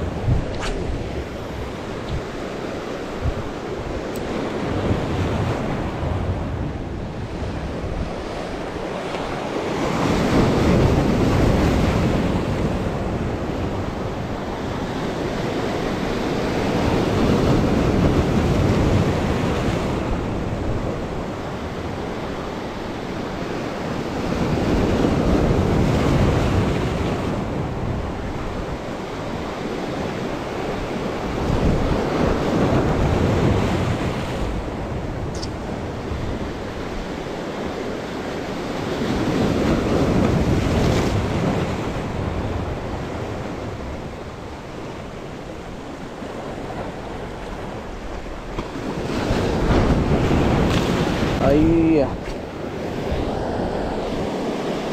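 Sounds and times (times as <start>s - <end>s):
sea waves breaking on concrete: 46.1s - 54.9s.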